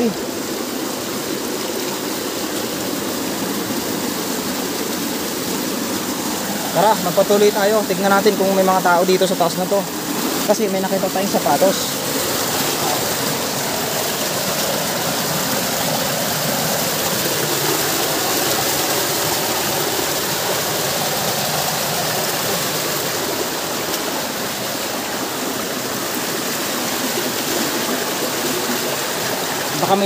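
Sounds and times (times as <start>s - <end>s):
stream water flowing over rocks: 0.0s - 30.0s.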